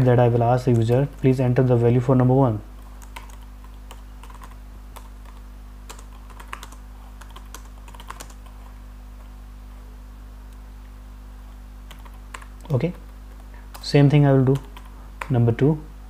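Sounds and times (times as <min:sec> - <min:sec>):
low electrical hum: 0:00.0 - 0:16.0
keyboard typing: 0:02.8 - 0:08.7, 0:11.9 - 0:15.4.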